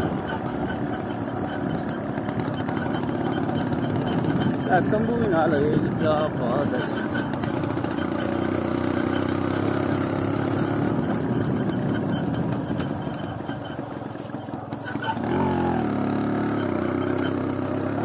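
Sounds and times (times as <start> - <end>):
vehicle engine running: 0.0 - 18.0.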